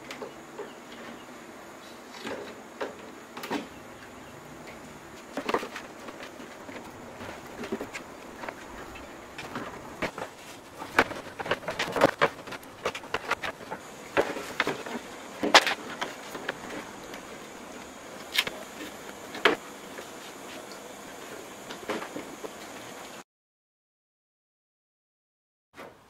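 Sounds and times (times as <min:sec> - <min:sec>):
wood snapping: 0:15.4 - 0:16.6, 0:18.2 - 0:18.6.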